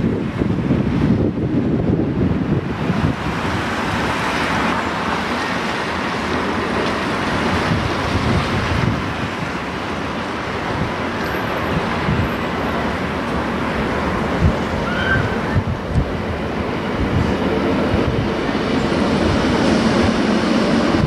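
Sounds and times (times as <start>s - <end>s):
diesel railcar engine: 0.0s - 21.0s
train wheels on rails: 0.0s - 21.0s.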